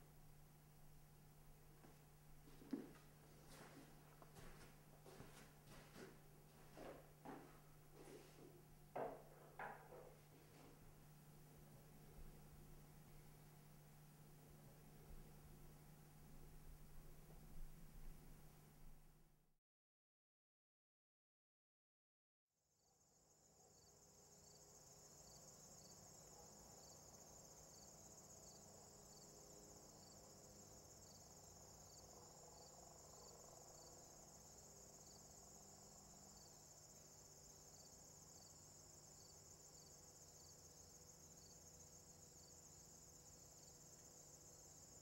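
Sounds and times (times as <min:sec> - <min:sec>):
crickets trilling: 0:23.4 - 0:45.0.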